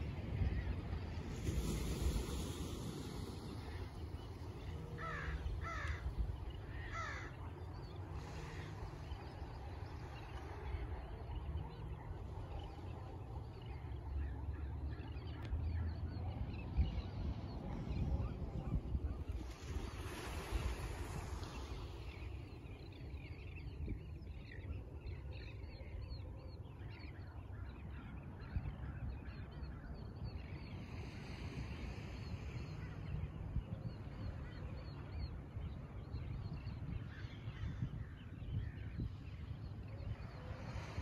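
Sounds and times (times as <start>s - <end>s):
wind: 0.0s - 41.0s
flock of birds calling: 0.1s - 15.5s.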